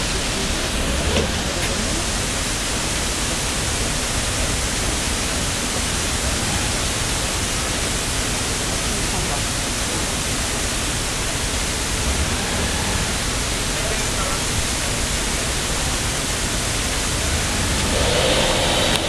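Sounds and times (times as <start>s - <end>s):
water rushing through sluices: 0.0s - 19.0s.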